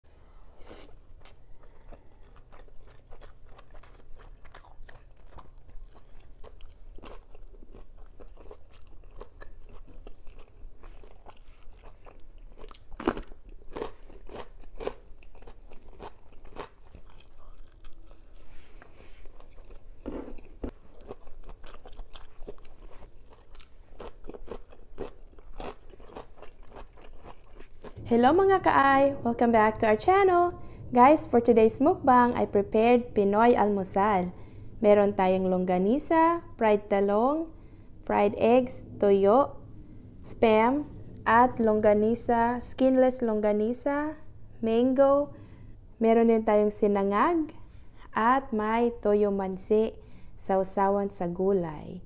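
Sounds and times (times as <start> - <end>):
person chewing crunchy food: 0.6 - 28.0.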